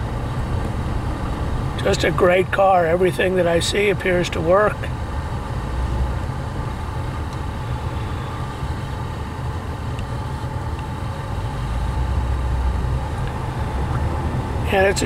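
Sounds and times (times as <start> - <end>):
car engine and road rumble: 0.0 - 15.0.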